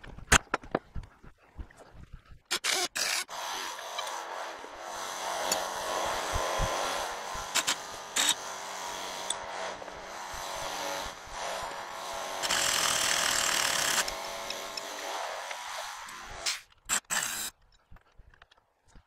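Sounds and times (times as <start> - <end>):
air impact wrench running: 2.6 - 17.5
steady hum: 3.3 - 17.1.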